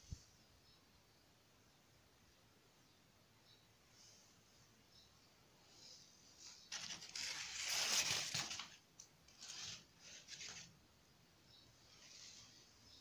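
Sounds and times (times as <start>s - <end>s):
rough scraping and rustling: 6.4s - 10.8s.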